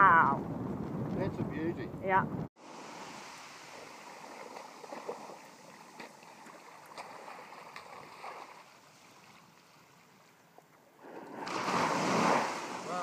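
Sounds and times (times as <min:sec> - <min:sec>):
seawater sloshing and splashing: 0:02.6 - 0:13.0
small waves lapping: 0:02.6 - 0:13.0
small sharp splashes: 0:02.9 - 0:10.4.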